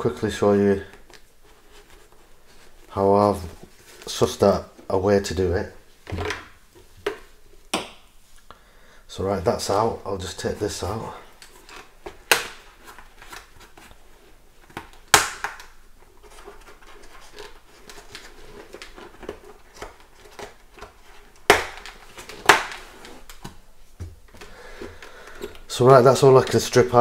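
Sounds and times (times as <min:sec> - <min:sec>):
fabric and foam rustling: 0:00.0 - 0:07.4.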